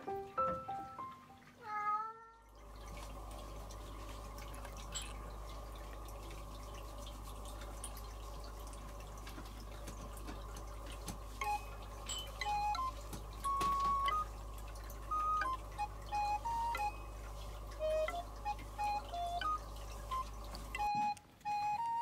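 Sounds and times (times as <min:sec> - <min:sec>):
low room hum: 0:00.0 - 0:22.0
simple melody of single notes: 0:11.4 - 0:22.0.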